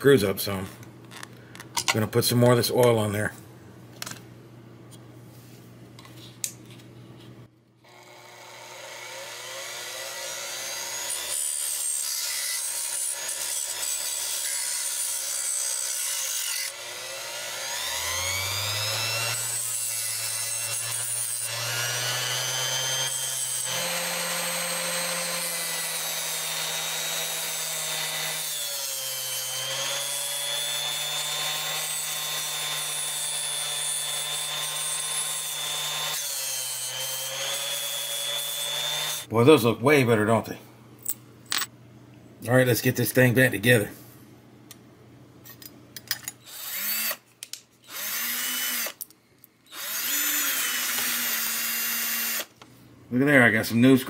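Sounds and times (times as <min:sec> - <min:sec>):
bench grinder whine: 0:07.8 - 0:39.3, 0:49.7 - 0:52.5.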